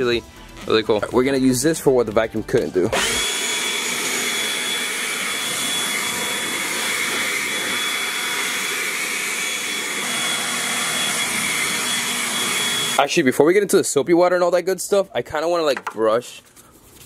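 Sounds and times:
cordless blower running: 0:02.9 - 0:13.1.

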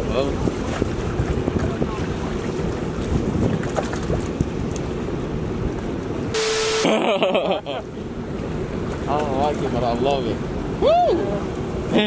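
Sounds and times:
wind on microphone: 0:00.0 - 0:06.4
steady hum: 0:06.4 - 0:07.4.

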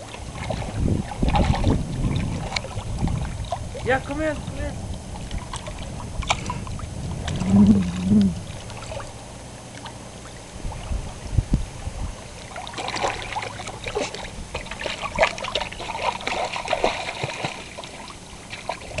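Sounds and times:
low thumps: 0:06.6 - 0:08.8
dog splashing in water: 0:12.4 - 0:19.0.

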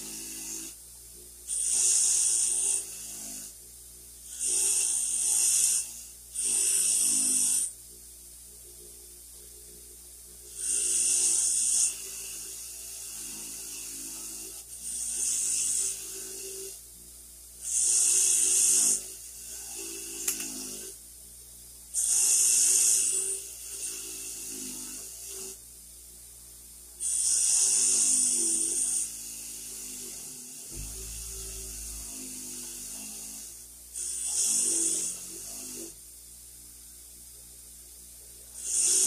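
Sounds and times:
motor hum: 0:30.7 - 0:35.9.

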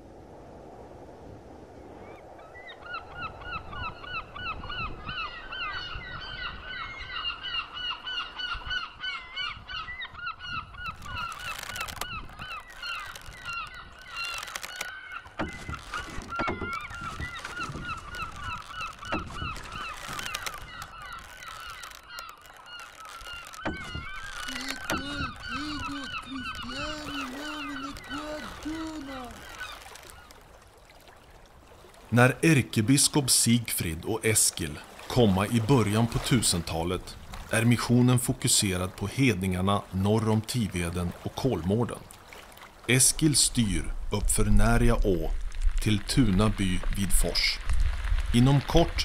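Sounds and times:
geese honking: 0:10.9 - 0:30.2.

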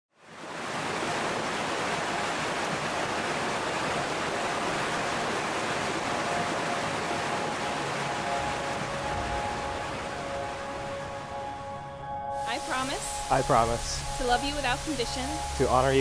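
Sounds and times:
water rushing over rocks: 0:00.2 - 0:11.7.

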